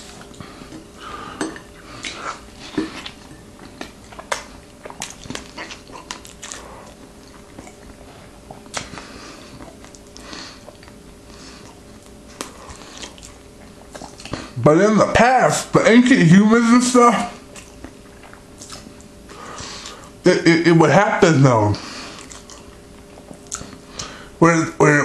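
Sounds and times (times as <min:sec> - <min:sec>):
person chewing: 0:00.0 - 0:14.6, 0:17.4 - 0:20.2, 0:21.8 - 0:24.2
faint steady hum: 0:00.0 - 0:25.0.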